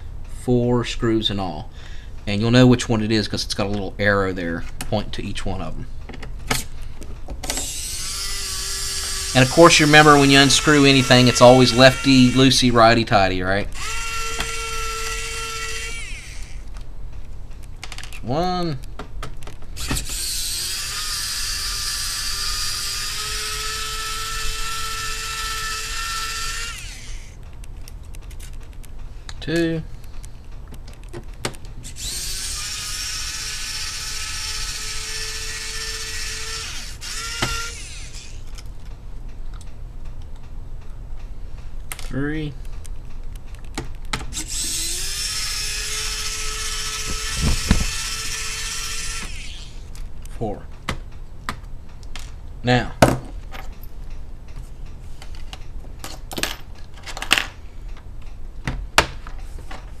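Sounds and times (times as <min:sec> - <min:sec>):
electric screwdriver whirring: 0:07.5 - 0:12.6, 0:13.8 - 0:16.7, 0:19.8 - 0:27.4, 0:31.8 - 0:38.6, 0:44.3 - 0:49.9.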